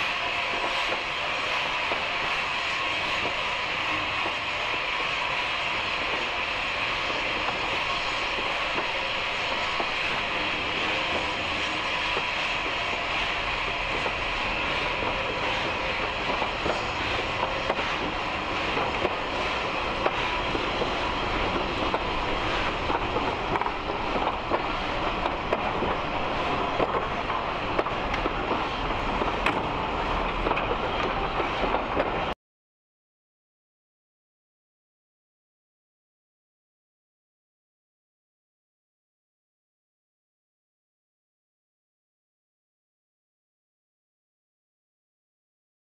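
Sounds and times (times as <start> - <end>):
train coaches rumbling: 0.0 - 32.4.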